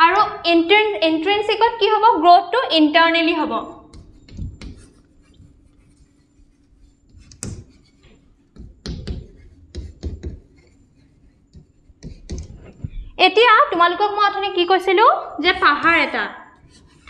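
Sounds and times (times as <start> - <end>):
pen tapping and scratching: 3.8 - 13.0.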